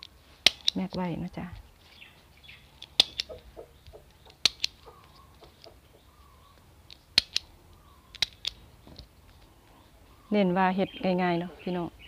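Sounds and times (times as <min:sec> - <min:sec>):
stapler clicking: 0:00.4 - 0:01.0, 0:02.8 - 0:03.4, 0:04.4 - 0:04.8, 0:06.9 - 0:07.5, 0:08.1 - 0:08.6.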